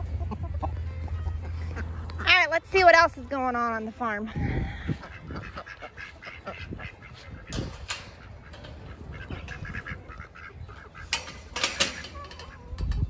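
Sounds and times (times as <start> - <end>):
ducks quacking: 0.0 - 12.8
sharp rattling noises: 6.8 - 13.0.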